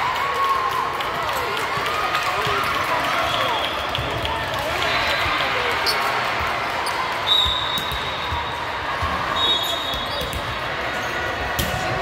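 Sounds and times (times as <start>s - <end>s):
murmur of voices in hall: 0.0s - 12.0s
shoe squeaks: 9.4s - 10.4s.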